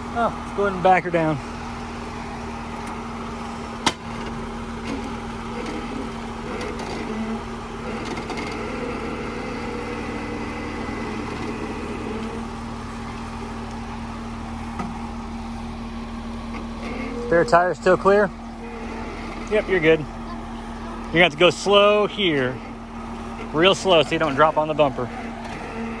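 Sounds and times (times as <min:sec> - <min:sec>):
off-road vehicle engine running: 0:00.0 - 0:26.0.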